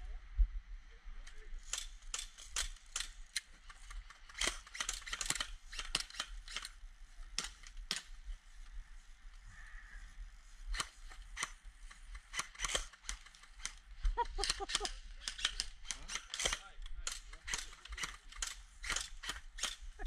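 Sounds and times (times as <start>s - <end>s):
airsoft rifle shots: 4.3s - 8.2s, 12.2s - 13.8s, 14.4s - 19.8s.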